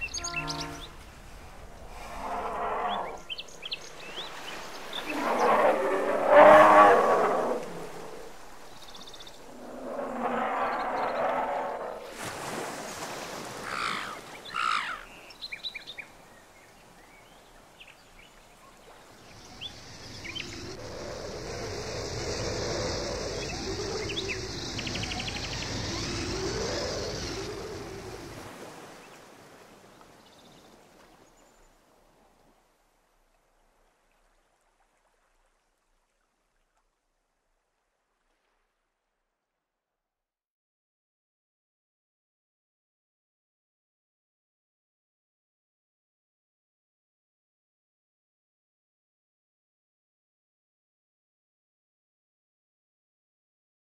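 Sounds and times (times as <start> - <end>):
short bird calls: 0.0 - 1.0, 13.6 - 15.1
wash of surf-like noise: 3.0 - 14.6, 18.9 - 30.0.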